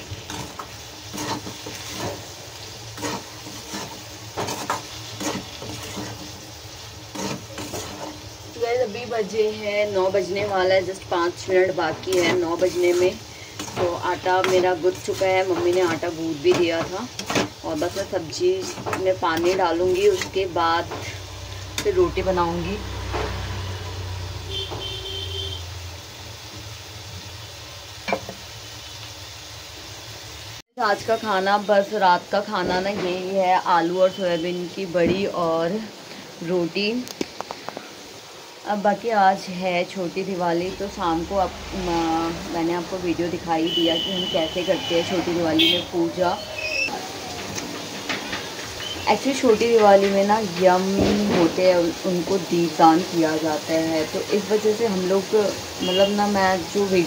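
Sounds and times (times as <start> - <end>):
steel spatula scraping a pan: 0.0 - 8.5, 10.1 - 22.0
oil sizzling: 0.0 - 57.0.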